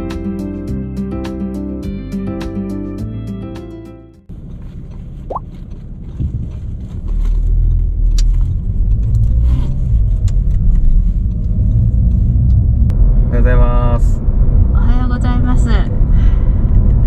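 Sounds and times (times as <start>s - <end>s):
car road and engine rumble: 4.2s - 17.0s.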